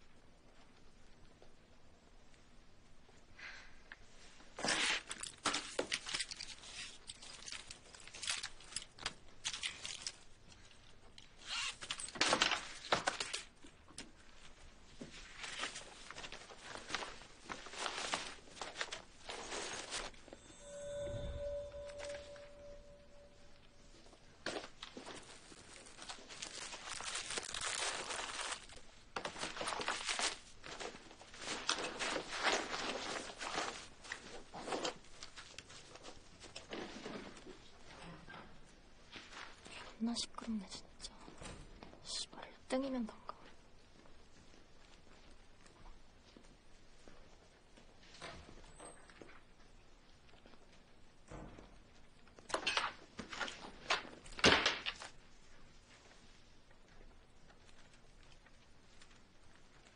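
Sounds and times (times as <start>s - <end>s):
paper bag rustling: 15.2s - 20.4s, 24.4s - 37.5s.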